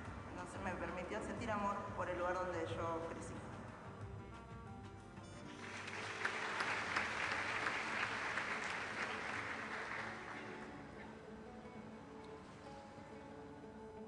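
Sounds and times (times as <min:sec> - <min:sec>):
soft background music: 0:00.0 - 0:14.0
audience applauding: 0:05.4 - 0:10.8.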